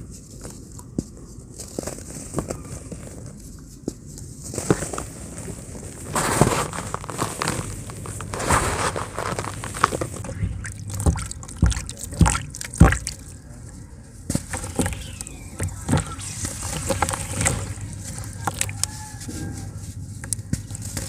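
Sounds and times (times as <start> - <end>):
water sloshing and trickling: 9.4 - 13.8, 14.5 - 18.9
sharp knocks: 10.4 - 13.2
pieces splashing into water: 10.5 - 13.3.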